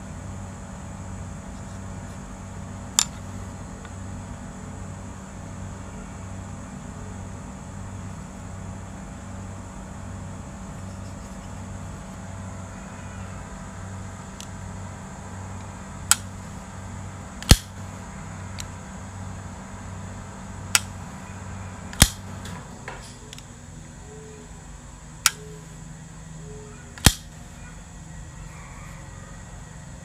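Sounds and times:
knife snapping shut: 22.0 - 22.2, 27.0 - 27.2.

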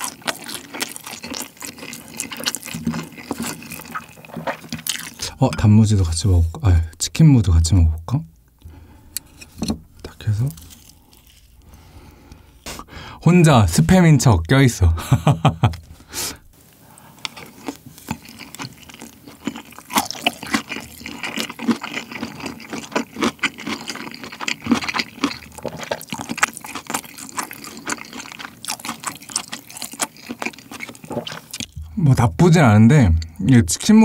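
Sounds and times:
close chewing with wet clicks: 0.0 - 5.2, 17.2 - 31.8.

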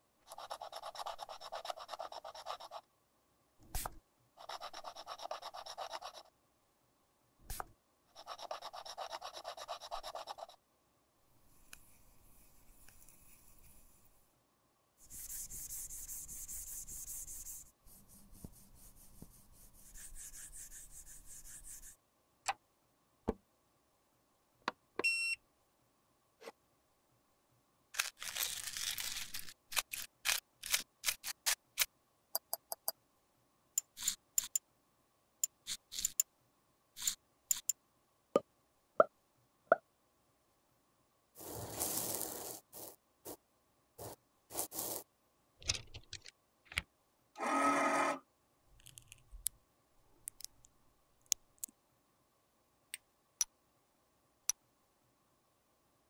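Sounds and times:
rubbing and scraping: 41.4 - 43.4, 44.0 - 45.0.

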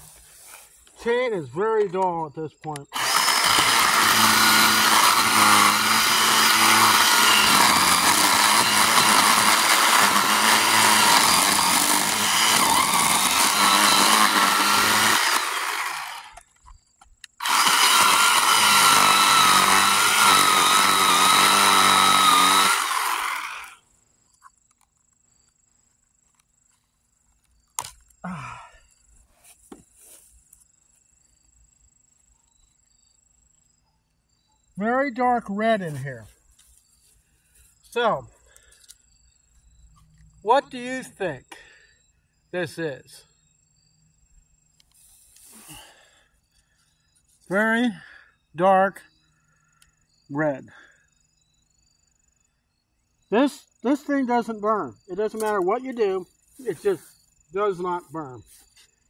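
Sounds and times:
chainsaw cutting wood: 2.7 - 16.5, 17.3 - 23.8.

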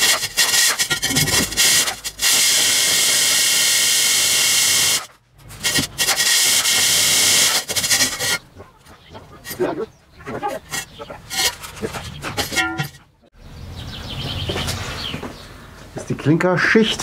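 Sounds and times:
drill grinding through brick: 0.0 - 8.4, 10.6 - 12.9.

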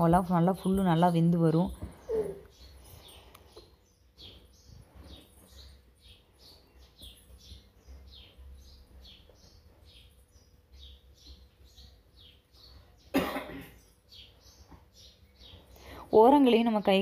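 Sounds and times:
small bird chirping: 0.0 - 17.0
person coughing: 13.1 - 13.8.

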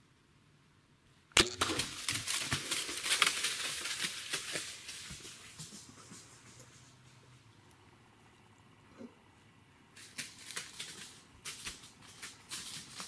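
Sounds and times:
sharp crack: 1.3 - 4.1
deer running through dry leaves: 1.6 - 7.4, 10.0 - 13.0.

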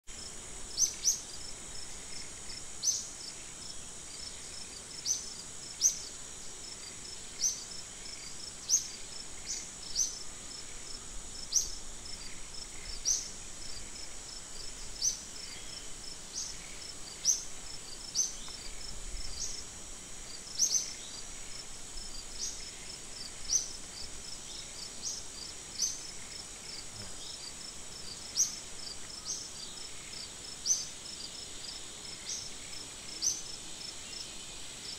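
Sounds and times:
insects droning and trilling: 0.1 - 34.9
sharp rising insect chirp: 0.7 - 19.7, 20.3 - 28.6.

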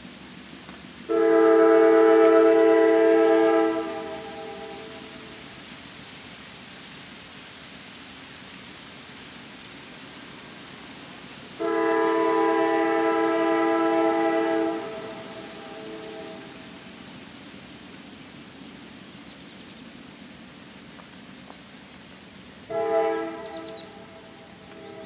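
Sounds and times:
steady wind-like hiss: 0.0 - 25.0
locomotive air horn blast: 1.1 - 5.3, 11.6 - 16.6, 22.7 - 25.0.

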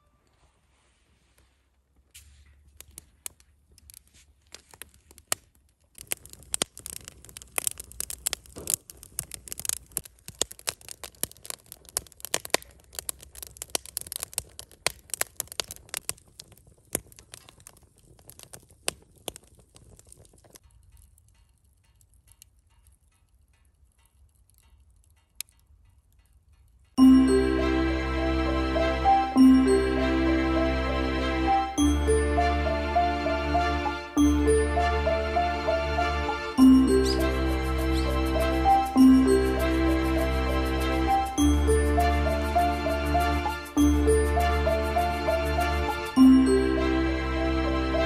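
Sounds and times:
low fire rumble: 1.4 - 48.0
wood fire crackling and popping: 2.1 - 27.1, 35.8 - 46.9.

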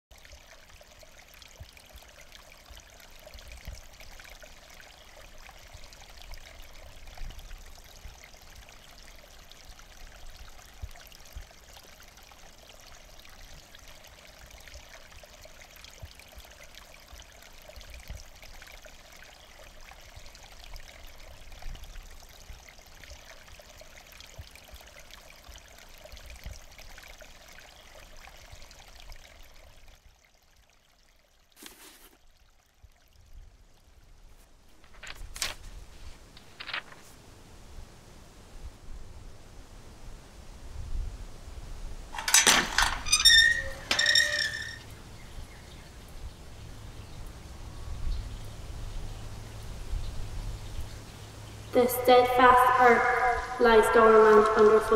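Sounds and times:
steady rain: 33.2 - 54.9.

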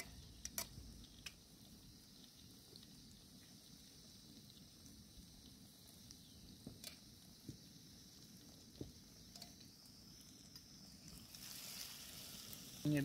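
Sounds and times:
hot oil sizzling: 0.0 - 13.0.

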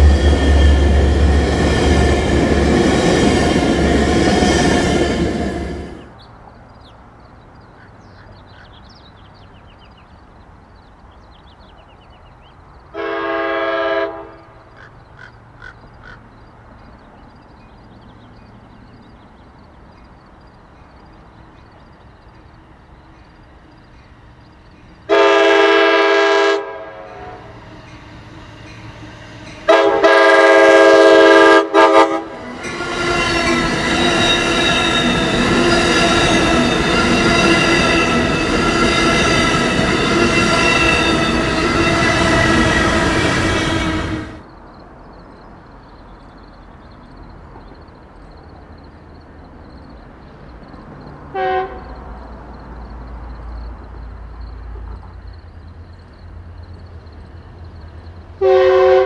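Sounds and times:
train horn blasts: 0.0 - 3.8, 13.0 - 14.6, 25.1 - 44.4, 51.3 - 52.0, 58.4 - 59.0
train approaching: 0.0 - 59.0.

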